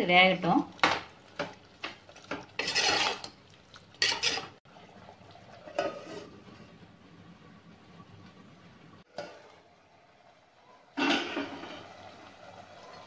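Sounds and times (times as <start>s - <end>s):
ladle scraping metal pot: 1.4s - 3.3s, 4.0s - 4.6s, 5.6s - 6.5s, 11.0s - 11.9s.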